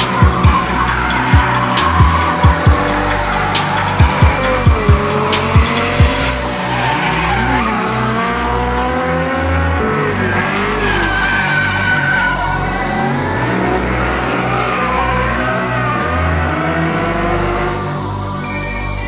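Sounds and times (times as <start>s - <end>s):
car engine drone: 0.0s - 19.0s.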